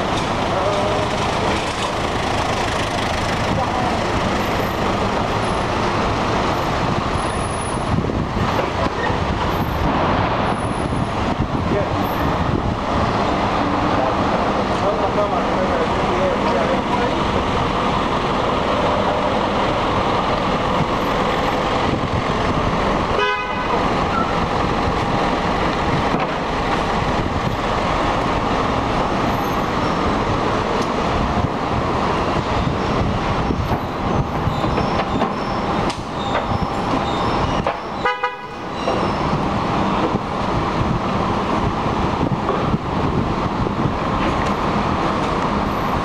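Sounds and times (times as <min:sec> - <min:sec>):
city traffic din: 0:00.0 - 0:46.0
vehicle horn tooting: 0:23.2 - 0:24.2, 0:38.0 - 0:38.7.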